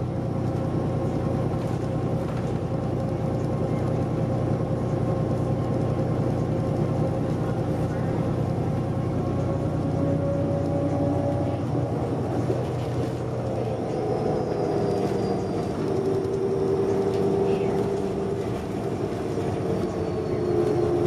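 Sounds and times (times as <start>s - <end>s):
bus transmission whine: 0.0s - 21.0s
road and engine hum: 0.0s - 21.0s.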